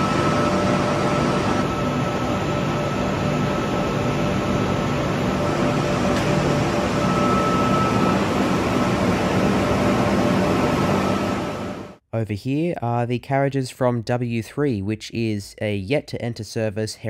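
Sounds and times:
low hum: 0:00.0 - 0:12.0
machinery and ventilation drone: 0:00.0 - 0:12.0.

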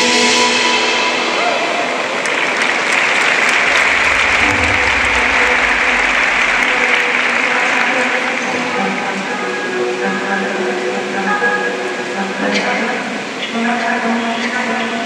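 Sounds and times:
audience applauding: 0:01.9 - 0:08.4.

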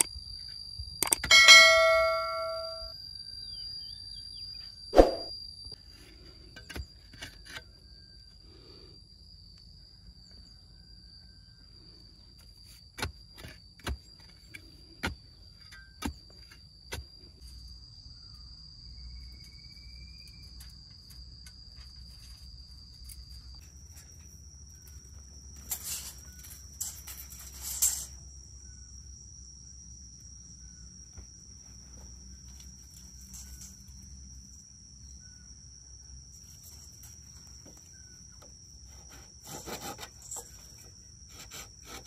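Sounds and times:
insects droning: 0:00.0 - 0:42.0
rustling scraping noise: 0:25.6 - 0:28.2.

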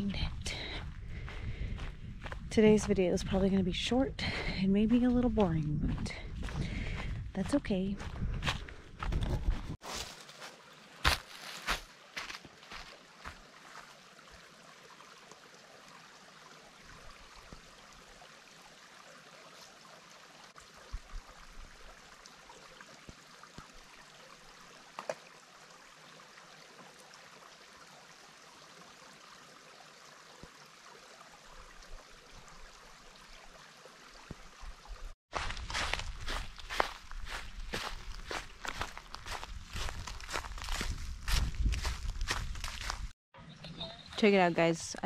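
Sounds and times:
stream trickling: 0:09.8 - 0:43.0.

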